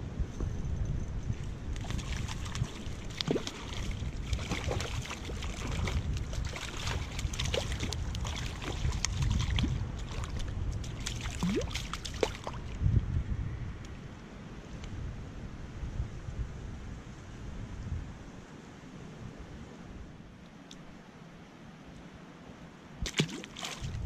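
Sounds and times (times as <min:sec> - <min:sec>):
wind rumble on microphone: 0:00.0 - 0:21.1, 0:22.9 - 0:24.0
water splashing in stream: 0:01.7 - 0:12.8, 0:23.0 - 0:24.0.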